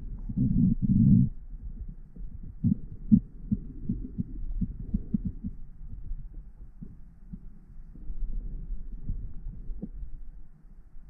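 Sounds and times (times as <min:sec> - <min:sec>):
water movement underwater: 0:00.0 - 0:10.6
muffled underwater thumps: 0:00.2 - 0:07.4.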